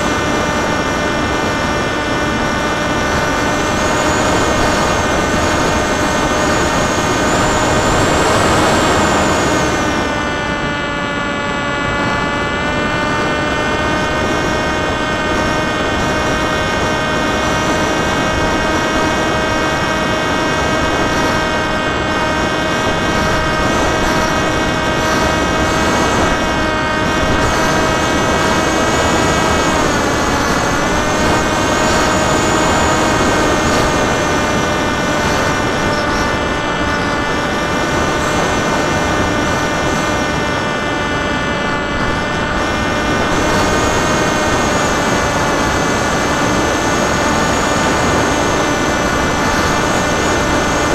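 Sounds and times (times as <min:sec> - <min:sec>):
electric motor propeller whine: 0:00.0 - 0:50.9
wind rush: 0:00.0 - 0:50.9.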